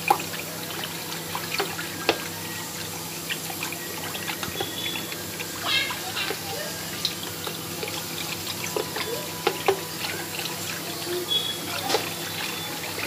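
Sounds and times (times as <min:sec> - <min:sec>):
liquid sloshing and splashing: 0:00.0 - 0:13.0
wooden churner clicking: 0:04.1 - 0:13.0.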